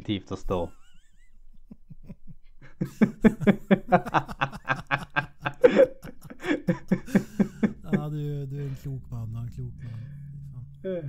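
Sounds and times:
men laughing: 0.6s - 9.0s.

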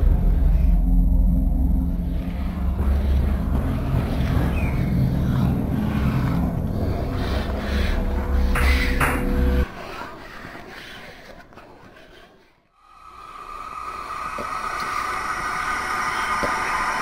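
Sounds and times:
low droning chord: 0.0s - 9.6s
rushing train-like noise: 13.1s - 17.0s.

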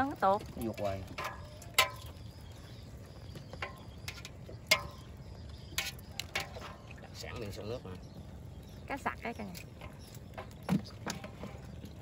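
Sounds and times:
fish knocking and slapping: 0.0s - 2.5s, 3.3s - 7.0s, 9.6s - 12.0s.

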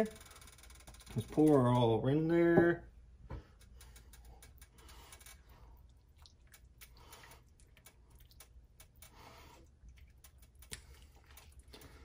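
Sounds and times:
wet squishing of stirring: 5.3s - 12.0s.

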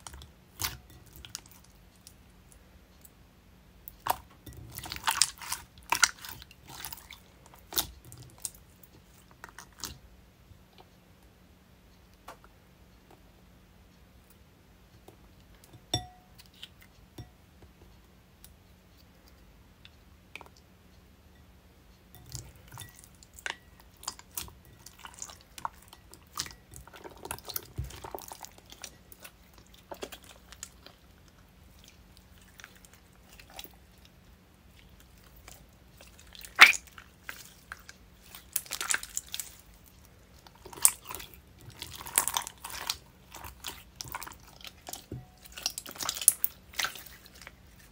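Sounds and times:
slime squishing and crackling: 3.9s - 10.0s, 22.2s - 47.9s.

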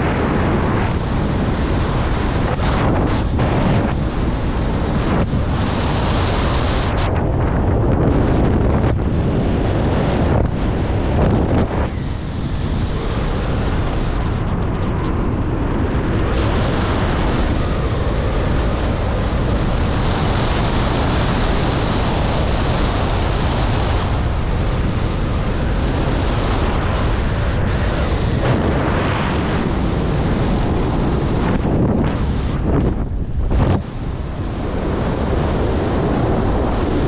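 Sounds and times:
wind buffeting microphone: 0.0s - 37.0s.

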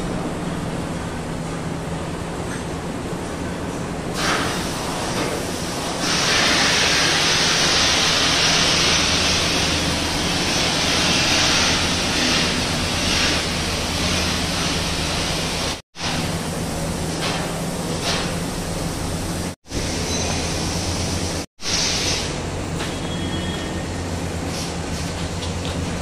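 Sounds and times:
low machine hum: 0.0s - 4.1s
strong machine hiss: 4.1s - 25.2s.

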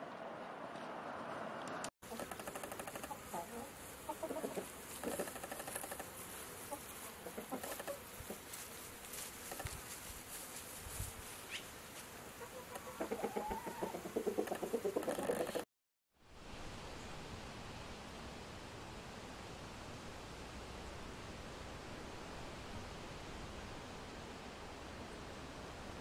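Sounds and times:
chickens clucking: 2.1s - 8.6s, 12.3s - 15.7s.

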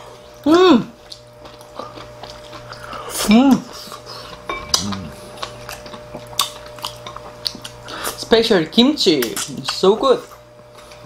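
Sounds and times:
wordless vocal sound: 4.6s - 5.3s.

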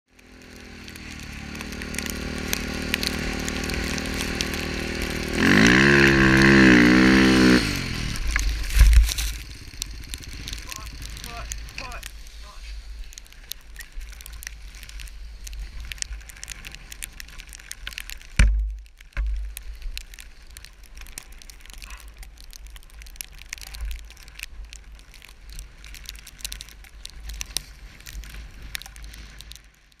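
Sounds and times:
crackling ticks: 0.1s - 30.0s
heavy thumps: 18.4s - 19.4s.

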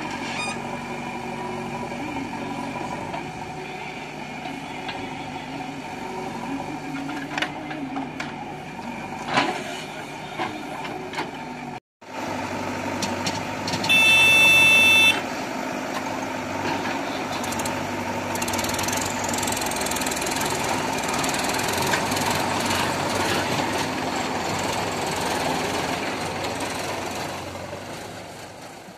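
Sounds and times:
diesel engines running: 0.0s - 28.9s
loud horn: 13.9s - 15.2s.

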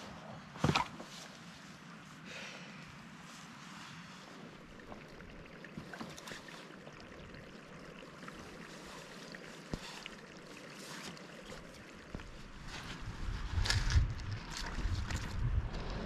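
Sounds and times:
water running: 4.3s - 13.4s
water drips and clicks: 4.5s - 15.8s.

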